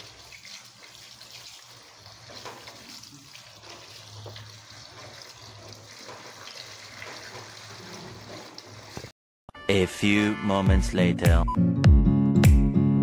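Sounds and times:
hand stirring pasta: 0.0s - 9.1s
tap water splashing in sink: 0.0s - 9.1s.

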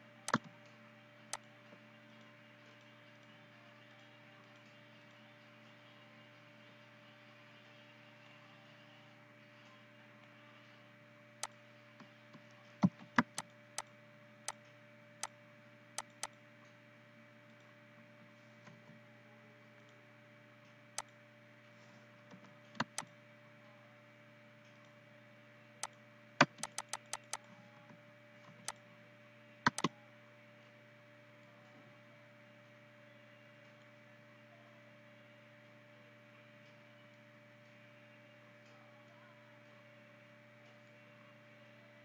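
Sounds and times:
faint electrical hum: 0.0s - 42.0s
mouse buttons clicking: 0.3s - 0.5s, 12.8s - 13.9s, 16.0s - 16.3s, 22.8s - 23.1s, 25.8s - 27.4s, 29.7s - 29.9s.

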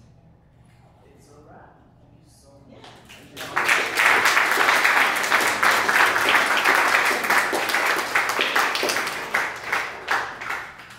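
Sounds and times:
applause: 2.9s - 10.9s.

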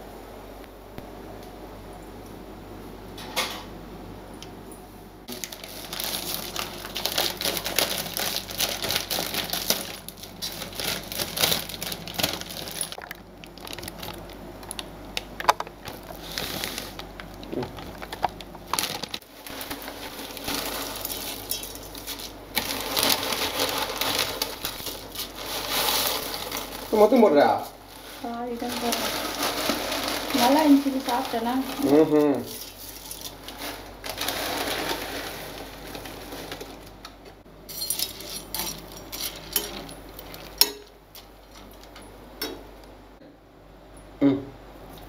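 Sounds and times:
dry noodles rattling: 5.3s - 37.0s
plastic packet crinkling: 5.3s - 37.0s.

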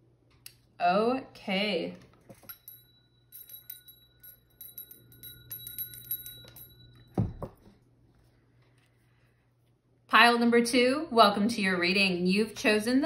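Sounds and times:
chime-like ringing: 2.4s - 7.6s.

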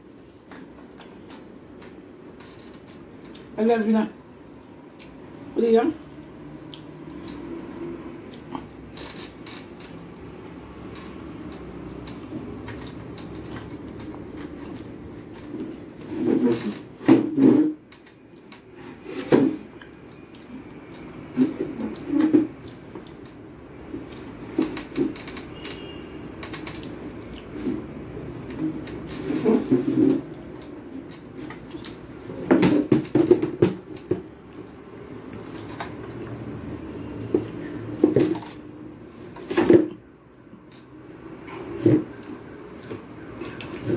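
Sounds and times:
low background hum: 0.0s - 43.9s
wet chewing: 9.8s - 15.4s, 30.1s - 32.1s.

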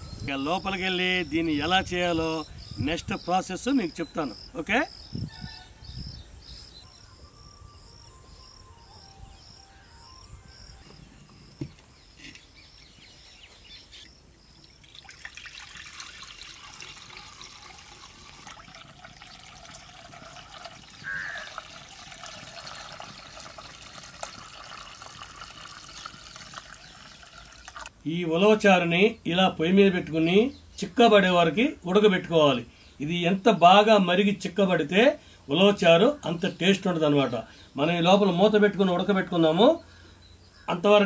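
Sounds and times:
crickets chirping: 0.0s - 27.6s
thick liquid pouring into pot: 14.8s - 27.9s.

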